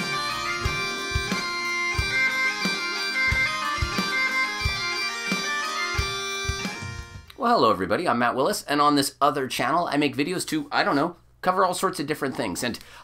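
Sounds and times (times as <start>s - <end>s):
low drum beat: 0.0s - 2.3s
bagpipe tune with drones: 0.0s - 7.3s.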